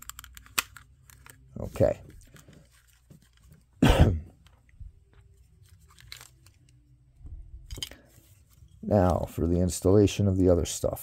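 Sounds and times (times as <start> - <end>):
plastic figure parts clicking: 0.0 - 1.4.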